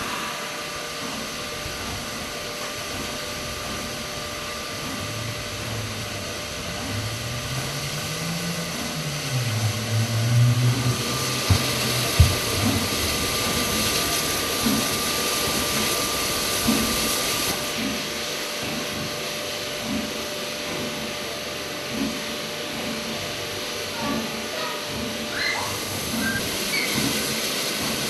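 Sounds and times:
low drone: 0:00.0 - 0:01.2, 0:05.0 - 0:14.4
locomotive exhaust beats: 0:00.0 - 0:19.2
steam hissing: 0:00.0 - 0:28.0.

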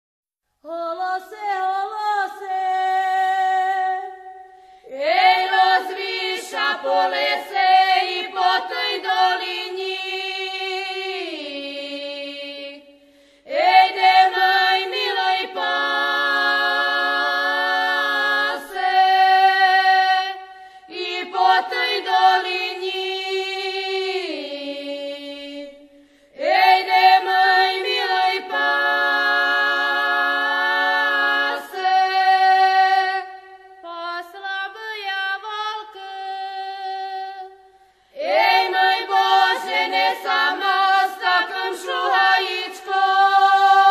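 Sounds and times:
women singing in harmony: 0:00.6 - 0:43.9.

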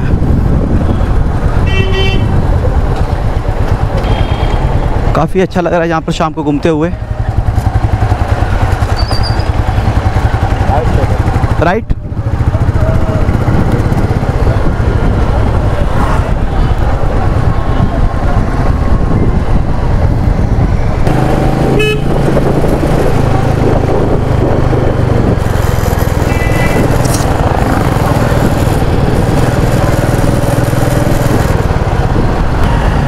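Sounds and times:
low wind rumble: 0:00.0 - 0:33.0
vehicle horn toots: 0:01.6 - 0:02.4, 0:04.0 - 0:04.6, 0:21.7 - 0:22.2, 0:26.2 - 0:27.2
motorcycle engine: 0:06.4 - 0:33.0.

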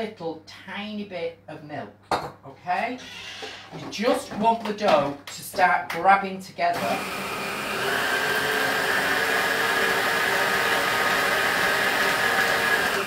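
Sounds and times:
stand mixer motor whirring: 0:06.8 - 0:13.0.

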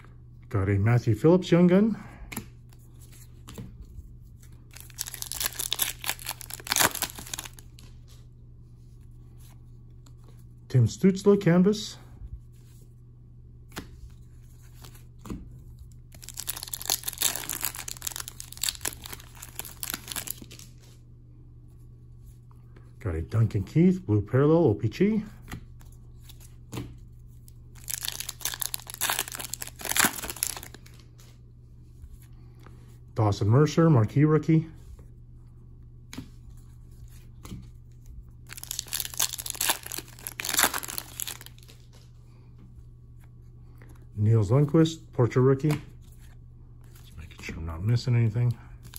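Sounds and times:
foil wrapper crinkling: 0:04.7 - 0:07.9, 0:16.1 - 0:20.8, 0:27.8 - 0:31.0, 0:38.5 - 0:42.0.

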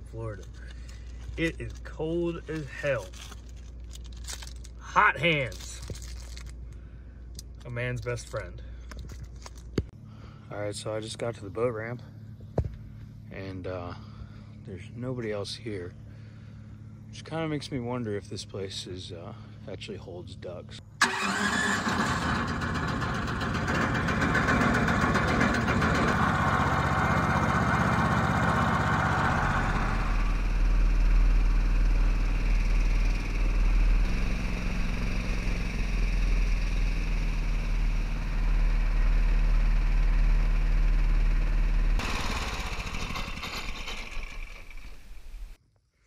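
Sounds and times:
outboard motor running: 0:21.9 - 0:45.3.

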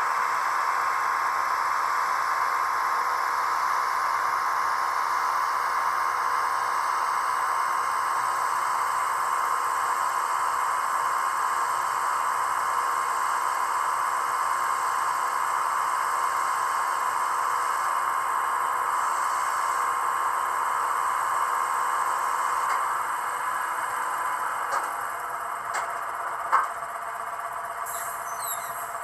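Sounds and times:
small electric motor whining: 0:27.8 - 0:29.0.

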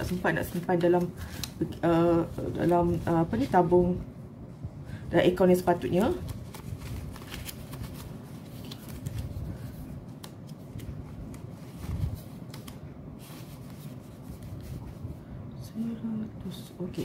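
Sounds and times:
banknotes rustling and snapping: 0:00.0 - 0:03.7, 0:05.8 - 0:14.9.

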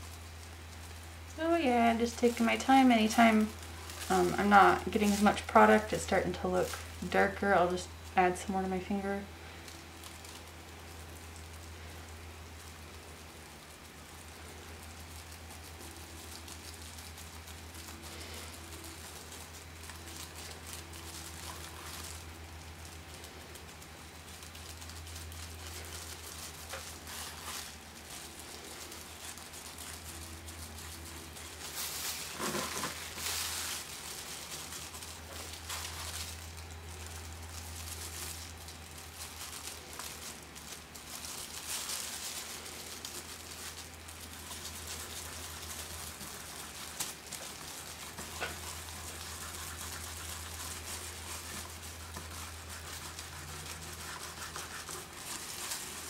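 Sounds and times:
plastic gloves crinkling: 0:00.0 - 0:56.0
steady low hum: 0:00.0 - 0:56.0.

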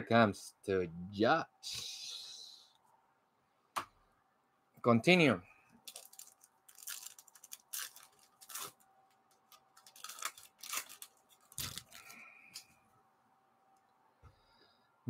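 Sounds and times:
foil wrapper tearing and crinkling: 0:05.8 - 0:12.6.

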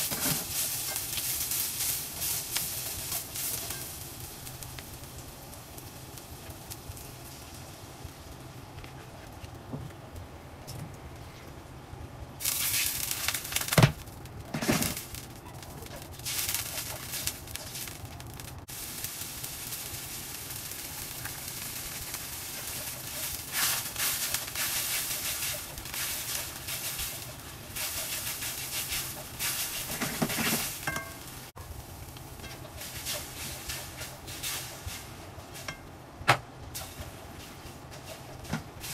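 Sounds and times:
onions sizzling in wok: 0:00.0 - 0:09.2, 0:12.4 - 0:38.9
spatula scraping pan: 0:22.6 - 0:31.1.

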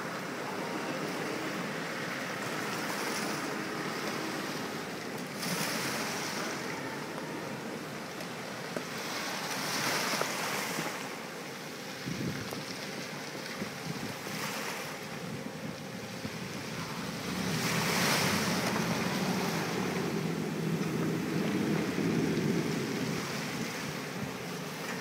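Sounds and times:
boat motor running: 0:00.0 - 0:25.0
sea wash: 0:00.0 - 0:25.0
wind buffeting microphone: 0:11.9 - 0:25.0.

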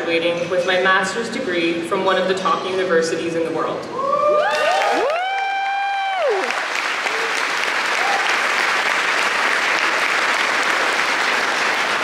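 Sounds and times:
high held cheer: 0:03.9 - 0:12.0
audience applauding: 0:04.4 - 0:12.0.

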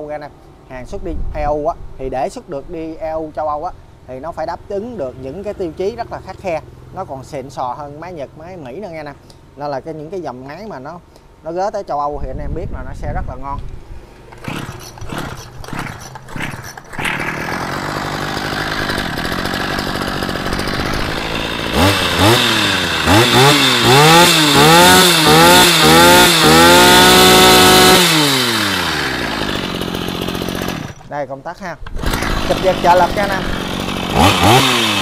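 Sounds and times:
recoil starter pulls: 0:14.2 - 0:31.1, 0:31.8 - 0:35.0
two-stroke brush cutter engine revving: 0:14.3 - 0:31.1, 0:31.8 - 0:35.0.

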